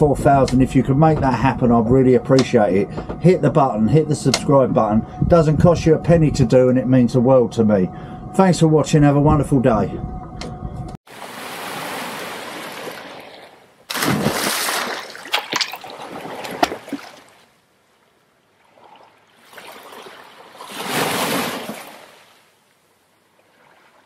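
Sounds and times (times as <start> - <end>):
loud water splash: 11.1 - 17.4, 18.8 - 22.4
rushing water: 11.1 - 17.6, 18.4 - 22.6.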